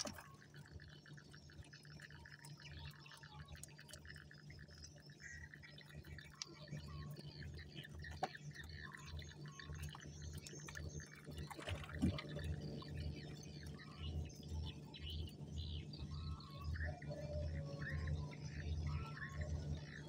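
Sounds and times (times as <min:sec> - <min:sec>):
water splash: 0:00.0 - 0:00.3, 0:11.4 - 0:12.4
water dripping and sloshing: 0:00.0 - 0:15.4
faint bird chirps: 0:00.0 - 0:20.0
pulsing low hum: 0:00.0 - 0:20.0.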